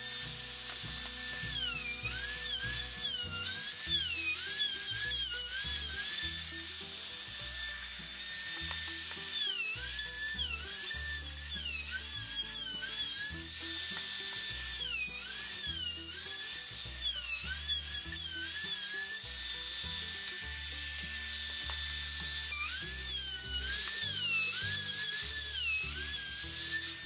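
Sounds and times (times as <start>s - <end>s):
wood router whining: 0.0s - 27.0s.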